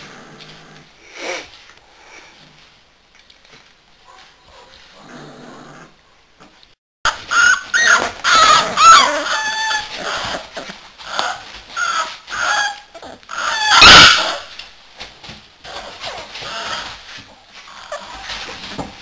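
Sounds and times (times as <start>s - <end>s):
puppies yapping and whining: 7.1s - 14.6s, 15.6s - 18.8s.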